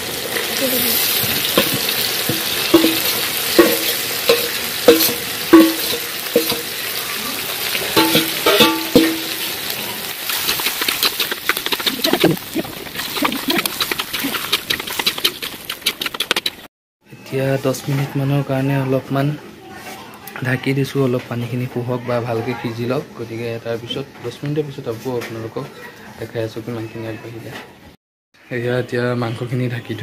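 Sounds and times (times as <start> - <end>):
meat sizzling in a wok: 0.0 - 13.8
spatula scraping pan: 0.9 - 6.9, 8.0 - 16.7
metal bowl clanking on wok: 1.4 - 7.0, 7.9 - 9.6.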